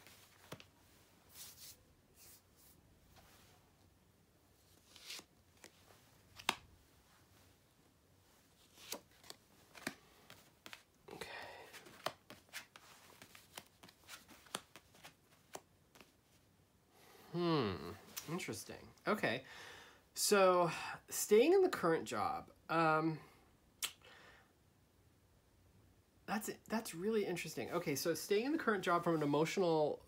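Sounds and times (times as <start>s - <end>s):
cards sliding: 4.6s - 6.7s, 8.5s - 10.9s, 11.6s - 16.1s
cards clicking and tapping: 6.4s - 6.7s, 8.8s - 10.8s, 11.7s - 16.1s.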